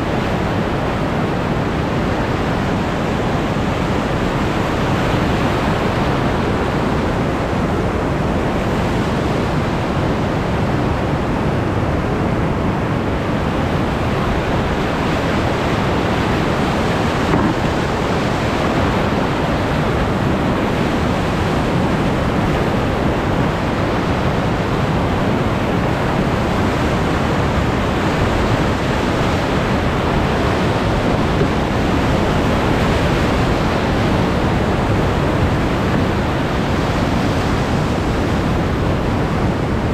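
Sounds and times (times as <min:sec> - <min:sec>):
whitewater rapids rushing: 0:00.0 - 0:39.9.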